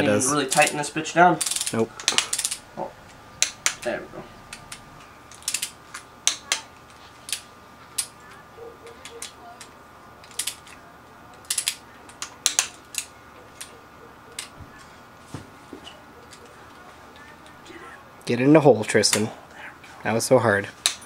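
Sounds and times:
torque wrench ratchet clicks: 0:01.4 - 0:02.6, 0:04.5 - 0:06.6, 0:09.0 - 0:10.8, 0:11.4 - 0:13.7.

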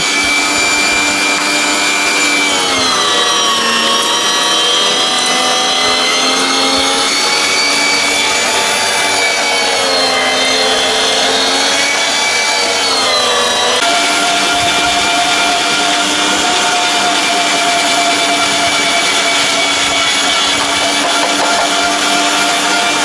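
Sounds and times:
electric meat mincer whining: 0:00.0 - 0:23.0.

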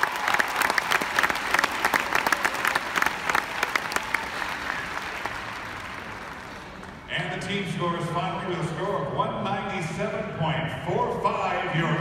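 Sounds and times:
crowd applauding: 0:00.0 - 0:07.1.

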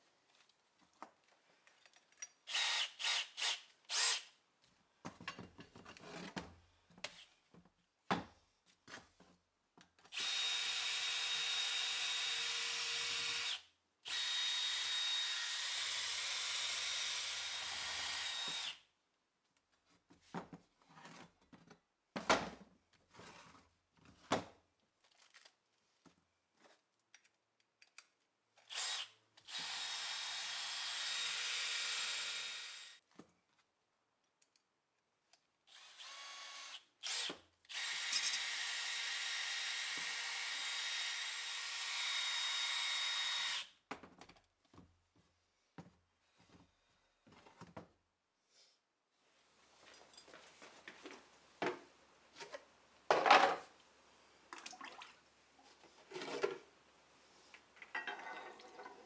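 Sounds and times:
cordless drill running: 0:02.5 - 0:04.3, 0:10.2 - 0:18.8, 0:28.7 - 0:33.0, 0:35.7 - 0:43.7.

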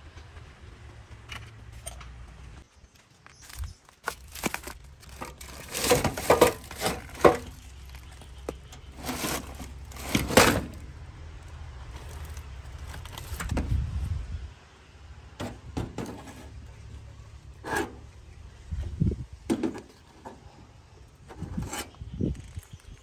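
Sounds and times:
metal junk knocking and clattering: 0:05.1 - 0:07.6.

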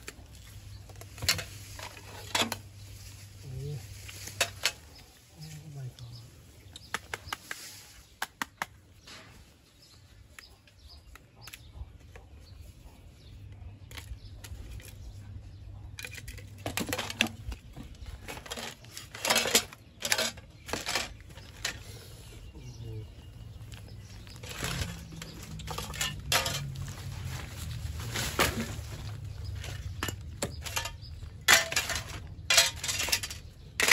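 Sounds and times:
phones clattering together: 0:16.0 - 0:21.8, 0:24.2 - 0:26.8, 0:29.4 - 0:33.9.

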